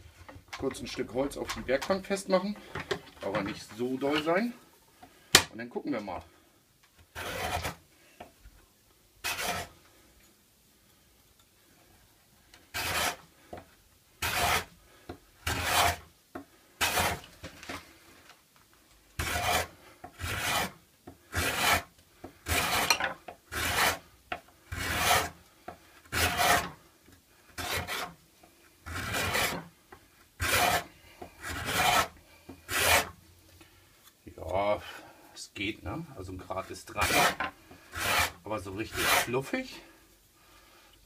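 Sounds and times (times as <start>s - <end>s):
card scraper rasping on wood: 7.1s - 7.8s, 9.2s - 9.7s, 12.7s - 13.2s, 14.2s - 14.7s, 15.4s - 16.0s, 16.8s - 17.3s, 19.2s - 24.0s, 24.7s - 25.4s, 26.1s - 26.8s, 27.6s - 28.1s, 28.8s - 29.7s, 30.4s - 33.2s, 37.0s - 39.3s.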